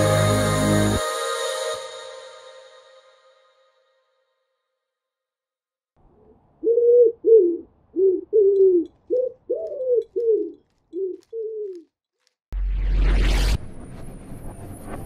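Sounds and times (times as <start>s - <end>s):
pigeon cooing: 6.2s - 11.8s.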